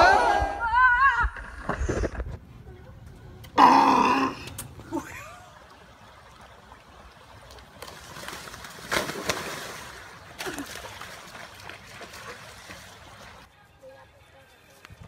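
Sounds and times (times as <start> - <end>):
creek trickling: 4.3 - 13.5
dog splashing in water: 7.5 - 13.4.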